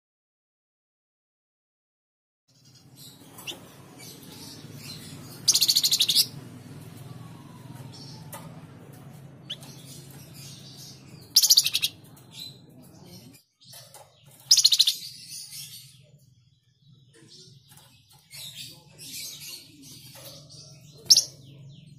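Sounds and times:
songbird trilled bursts: 0:05.3 - 0:06.4.

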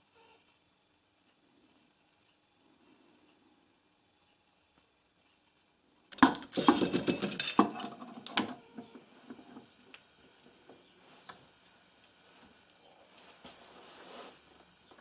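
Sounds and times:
metallic clinks and wooden knocks: 0:06.1 - 0:09.0.

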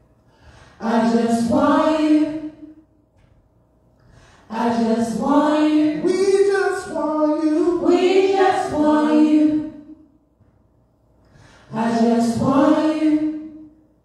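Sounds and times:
group singing without instruments: 0:00.4 - 0:02.9, 0:04.0 - 0:10.2, 0:11.3 - 0:13.8.

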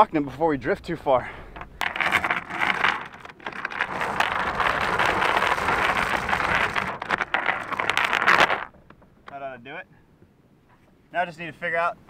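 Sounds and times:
anchor chain rattling: 0:01.5 - 0:09.0.

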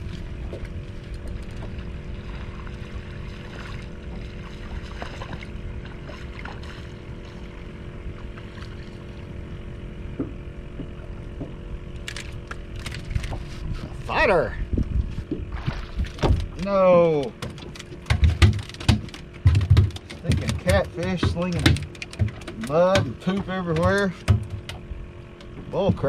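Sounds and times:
faint steady hum: 0:00.0 - 0:26.0
water lapping against boat hull: 0:00.0 - 0:26.0
wind rumbling over microphone: 0:12.6 - 0:16.6.

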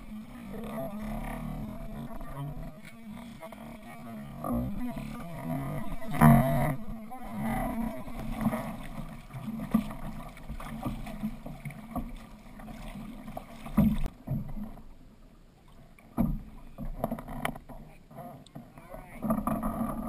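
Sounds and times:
paddles splashing into water: 0:00.0 - 0:14.8
water rushing past hull: 0:00.0 - 0:20.0.

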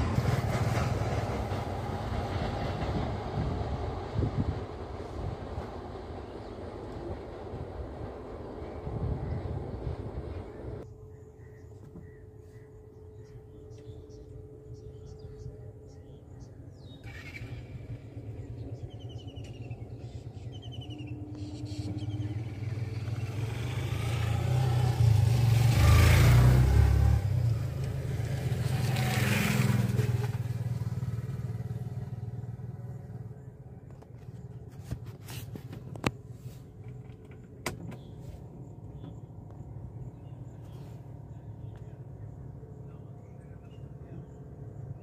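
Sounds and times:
vehicles passing close by: 0:16.8 - 0:45.0
motorcycle passing: 0:21.0 - 0:33.5.

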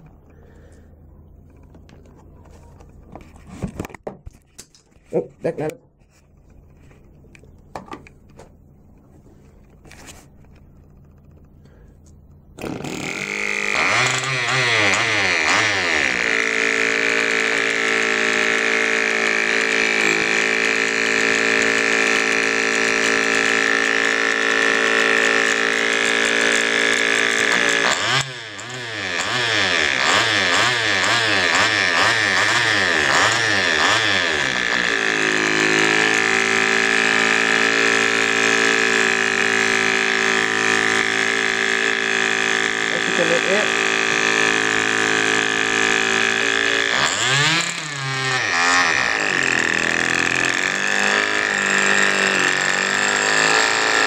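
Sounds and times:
model engine buzzing: 0:12.6 - 0:54.0.

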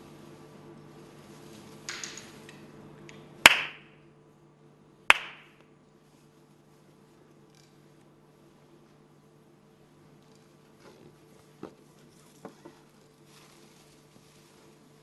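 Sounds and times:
hand claps with echo: 0:03.4 - 0:03.9, 0:05.1 - 0:05.7.

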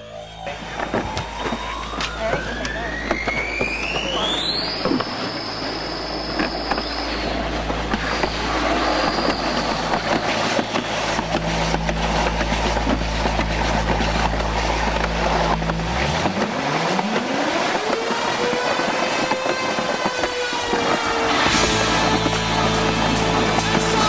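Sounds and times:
rising whine: 0:00.0 - 0:24.0
sled rushing down track: 0:00.3 - 0:24.0
sled knocking on track: 0:06.2 - 0:24.0.

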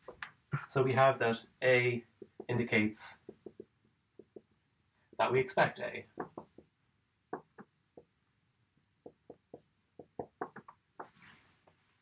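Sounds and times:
marker writing on whiteboard: 0:02.0 - 0:08.2, 0:08.8 - 0:11.9.

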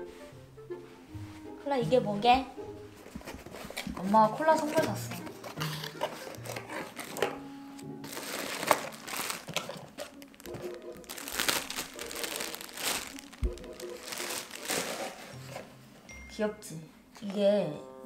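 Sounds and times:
plastic wrapping crinkling: 0:03.2 - 0:07.4, 0:08.0 - 0:15.7.

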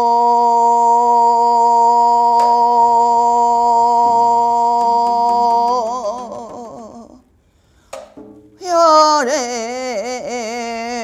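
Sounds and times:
woman singing long held note: 0:00.0 - 0:07.2.

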